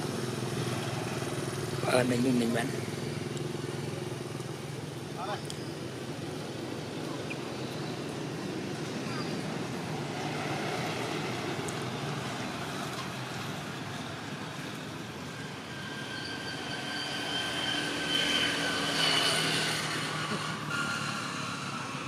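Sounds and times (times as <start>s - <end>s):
road traffic noise: 0.0s - 22.0s
thin engine whine: 15.3s - 22.0s
vehicle passing close: 15.3s - 22.0s.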